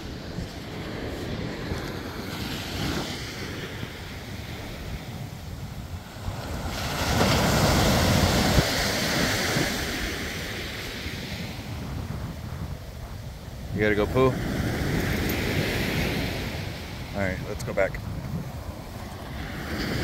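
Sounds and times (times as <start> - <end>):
surf breaking on beach: 0.0 - 12.7
wind rumbling on microphone: 0.0 - 20.0.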